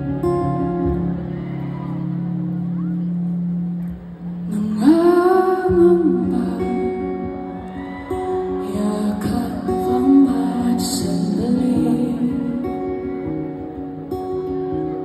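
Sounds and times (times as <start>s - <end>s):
acoustic guitar: 0.0s - 15.0s
woman singing into a microphone: 4.4s - 13.1s.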